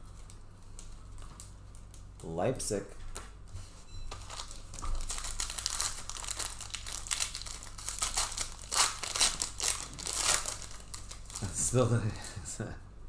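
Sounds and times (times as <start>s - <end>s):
plastic wrappers crinkling: 4.1s - 11.9s.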